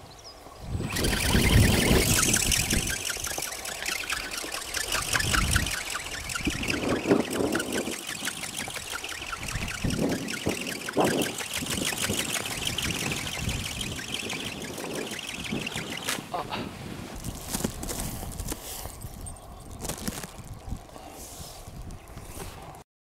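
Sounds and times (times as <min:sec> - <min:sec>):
wind buffeting microphone: 0:00.0 - 0:22.8
fast even ticking: 0:00.8 - 0:16.3.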